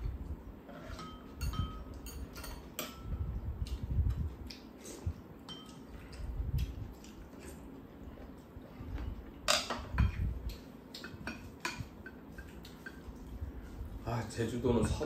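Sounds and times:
utensils clinking on ceramic bowls: 0:00.7 - 0:03.1, 0:05.4 - 0:05.9.

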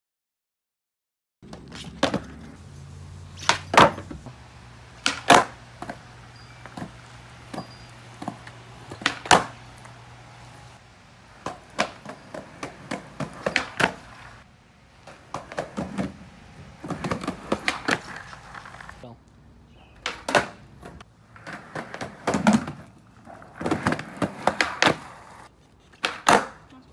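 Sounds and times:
skateboard clacks: 0:01.4 - 0:02.6, 0:03.3 - 0:19.0, 0:20.0 - 0:26.8
skateboard knocks and clatters: 0:01.4 - 0:02.6, 0:03.4 - 0:04.3, 0:05.0 - 0:10.0, 0:11.3 - 0:14.4, 0:15.0 - 0:19.0, 0:20.0 - 0:26.7.

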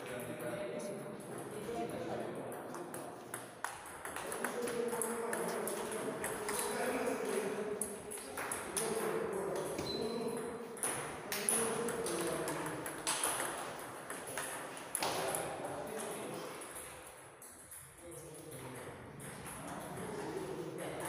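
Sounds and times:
table tennis ball hits: 0:02.7 - 0:16.1.

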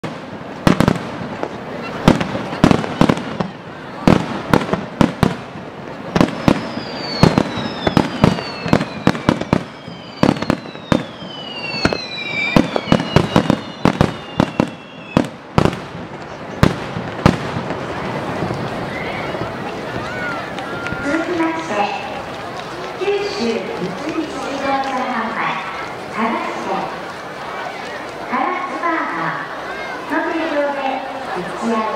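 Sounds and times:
firework shells bursting: 0:04.1 - 0:18.8
firework whistles sliding down: 0:06.3 - 0:15.3.

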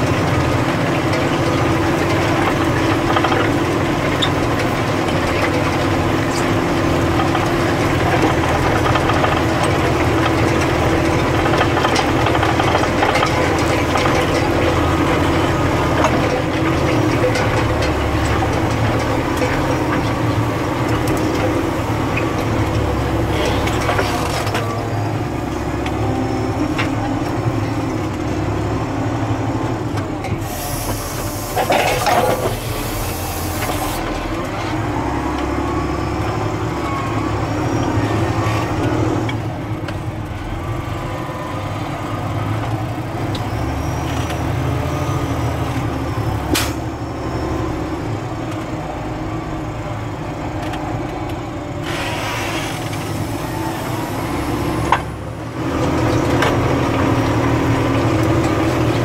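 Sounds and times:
tractor diesel engine running: 0:00.0 - 0:59.0
hiss bursts: 0:30.5 - 0:31.8, 0:51.8 - 0:54.2.

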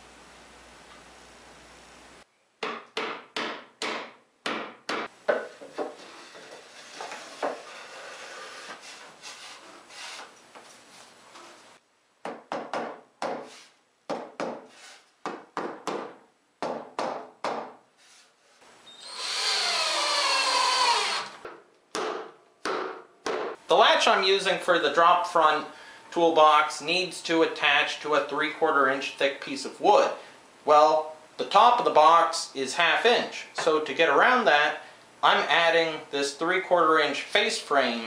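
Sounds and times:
wooden parts knocking and rubbing: 0:05.3 - 0:11.6
cordless drill driving screw: 0:18.9 - 0:21.4.

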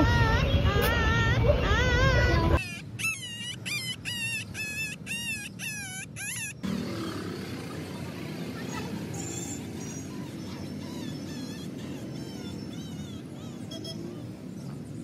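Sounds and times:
faint outdoor background noise: 0:00.0 - 0:15.0
puppy yelping: 0:02.6 - 0:06.6, 0:09.4 - 0:13.9.

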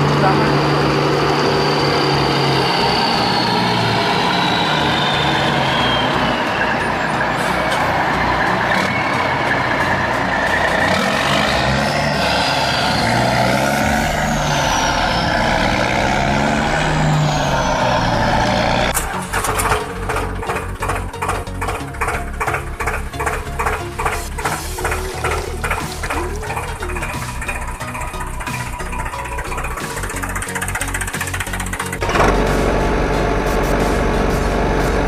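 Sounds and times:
heavy vehicle engine running: 0:00.0 - 0:35.0
high whine: 0:00.0 - 0:35.0.

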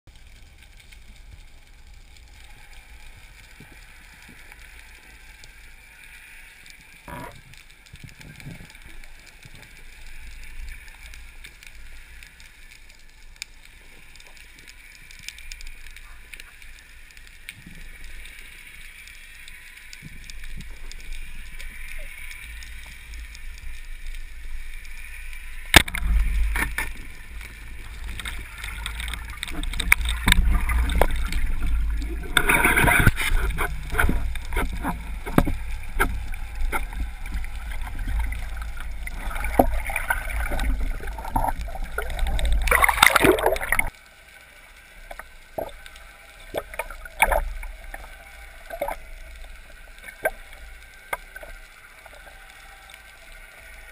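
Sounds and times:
underwater hiss: 0:00.5 - 0:53.9.

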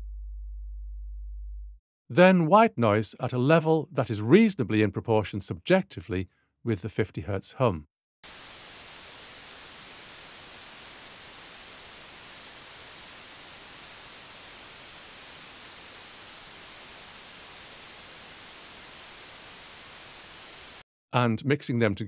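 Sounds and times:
steady white noise hiss: 0:08.3 - 0:20.8.

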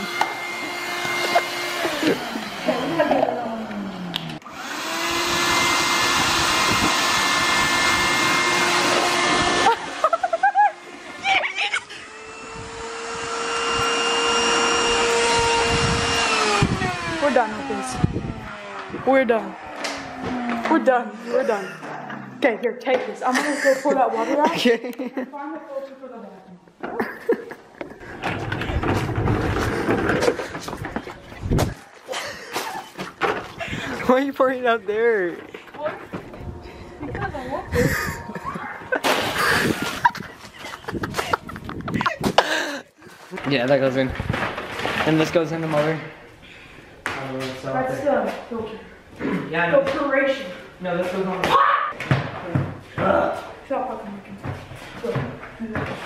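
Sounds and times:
shop vacuum motor whining: 0:00.0 - 0:22.3, 0:35.4 - 0:40.0
wind buffeting microphone: 0:15.3 - 0:19.1, 0:28.5 - 0:31.8, 0:36.1 - 0:42.4.

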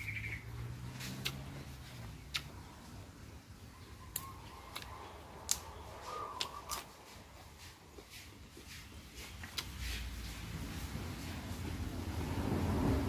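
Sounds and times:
bean pods chewed: 0:00.8 - 0:03.0, 0:03.9 - 0:10.7
raw vegetables snapping: 0:01.0 - 0:02.7, 0:04.0 - 0:07.3, 0:09.3 - 0:10.0.

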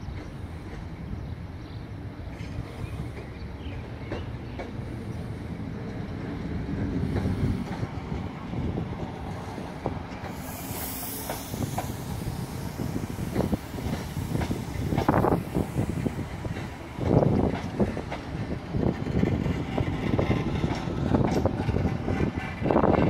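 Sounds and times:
train low rumble: 0:00.0 - 0:23.0
wheels clicking over rail joints: 0:09.1 - 0:23.0
hiss: 0:09.3 - 0:18.0.

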